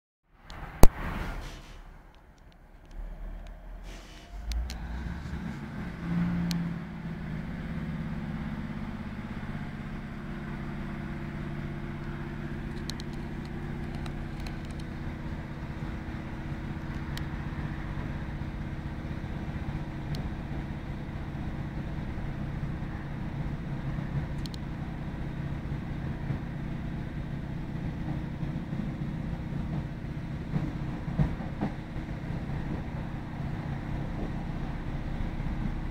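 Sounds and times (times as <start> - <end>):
train diesel engine drone: 0.4 - 35.9.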